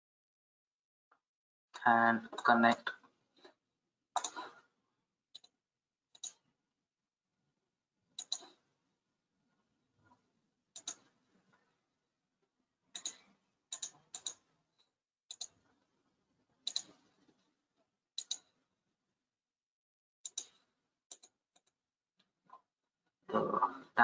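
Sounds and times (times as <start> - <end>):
computer mouse buttons clicking: 4.2 - 4.5, 6.2 - 6.4, 8.2 - 8.6, 10.8 - 11.1, 13.0 - 14.4, 15.3 - 15.6, 16.7 - 17.0, 18.2 - 18.5, 20.3 - 21.7.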